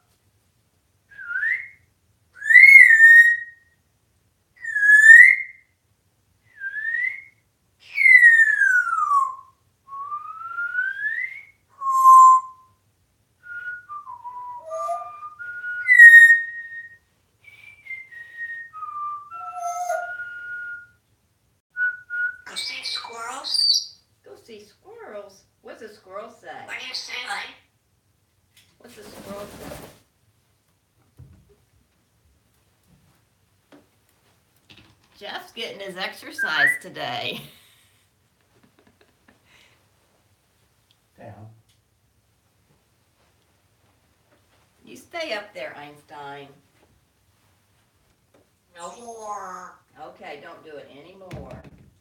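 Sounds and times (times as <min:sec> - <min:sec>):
parrot whistling: 0:02.4 - 0:03.7, 0:04.6 - 0:05.7, 0:06.5 - 0:12.7, 0:13.4 - 0:21.0, 0:36.1 - 0:37.2
parrot chatter: 0:22.5 - 0:23.8, 0:26.6 - 0:27.6, 0:48.8 - 0:49.9.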